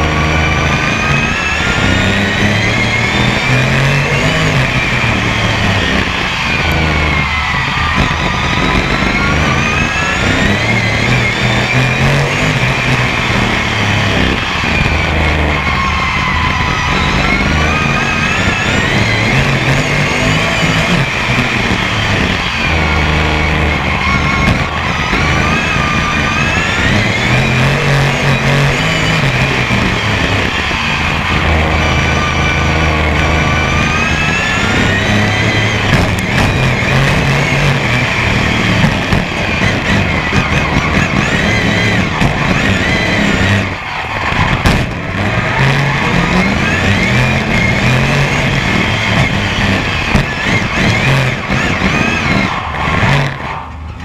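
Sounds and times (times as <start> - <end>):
racing car engine revving: 0.0 - 54.0.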